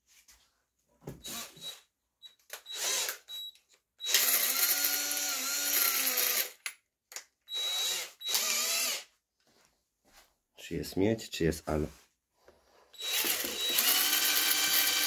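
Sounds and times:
electric drill boring: 2.6 - 3.4, 4.0 - 6.6, 7.5 - 9.1, 13.0 - 15.0.

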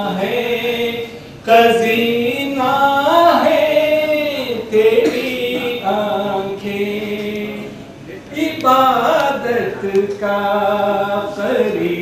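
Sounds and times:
unaccompanied person singing: 0.0 - 12.0.

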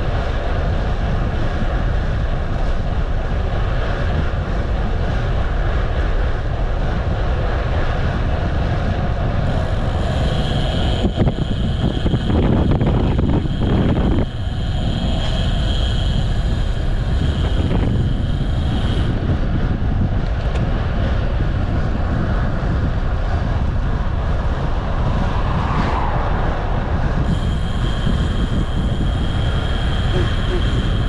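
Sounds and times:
road noise: 0.0 - 31.0
wind rumble on microphone: 0.0 - 31.0
thin high whine: 9.3 - 20.0, 24.8 - 31.0.

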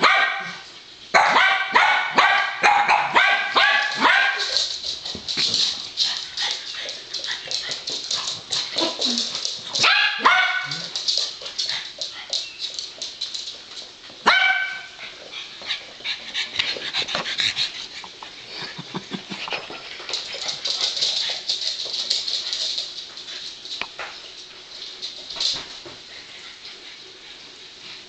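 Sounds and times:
dogs yipping and barking: 1.2 - 4.8, 8.3 - 11.0
claws clicking on floor: 3.6 - 14.2, 19.5 - 26.0.

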